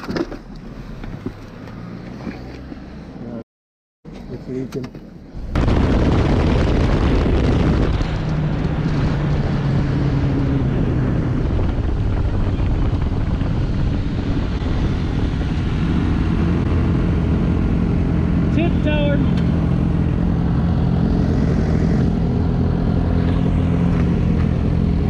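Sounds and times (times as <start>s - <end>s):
wind rush on microphone: 5.4s - 17.8s.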